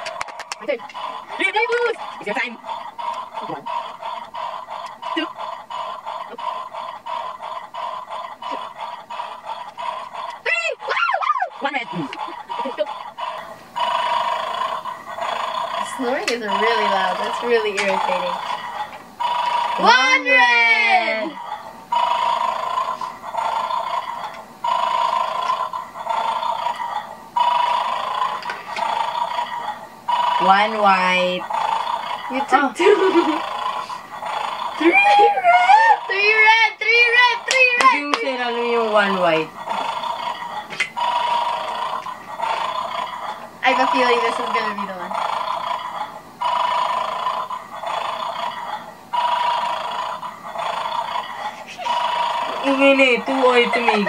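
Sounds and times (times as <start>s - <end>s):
electronic snoring: 0.0s - 54.0s.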